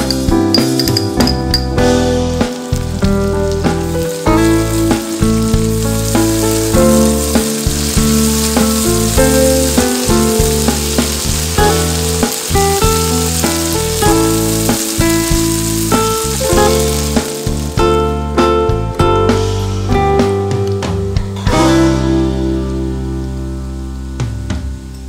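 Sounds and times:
paste sizzling in hot oil: 0.0s - 18.4s
music with stepping bass line: 0.0s - 22.4s.

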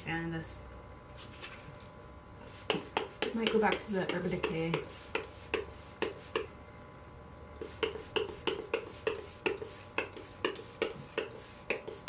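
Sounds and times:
spray bottle spritzing clicks: 7.6s - 12.0s.

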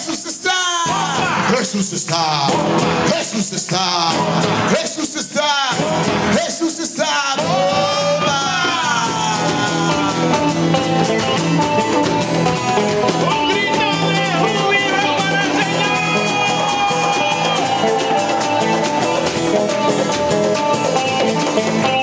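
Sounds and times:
worship music with singing: 0.0s - 11.0s, 13.3s - 19.2s
congregation clapping along: 0.1s - 5.2s, 8.1s - 22.0s.

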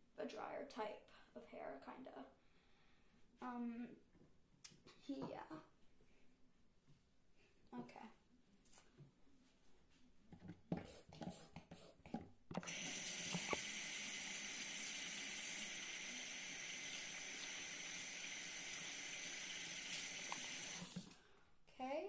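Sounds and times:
water running from a tap: 12.6s - 21.2s.

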